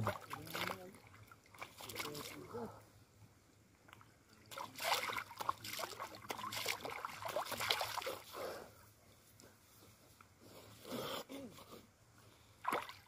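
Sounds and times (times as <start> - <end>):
water splashing and dripping: 0.0 - 2.6, 3.8 - 8.3, 12.6 - 13.0.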